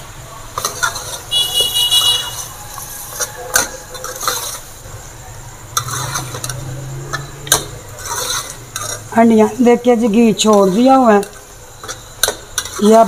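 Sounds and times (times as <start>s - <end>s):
metal ladle scraping a pot: 0.6s - 4.8s, 5.7s - 9.1s, 10.4s - 13.0s.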